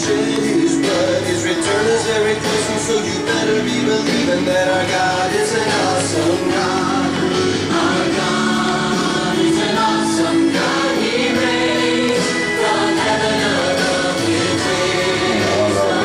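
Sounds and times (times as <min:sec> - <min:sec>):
choir singing song on radio: 0:00.0 - 0:16.0.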